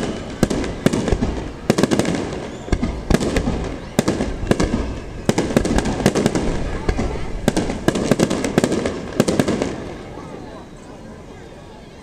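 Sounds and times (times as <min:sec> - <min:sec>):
continuous fireworks rumble: 0:00.0 - 0:10.4.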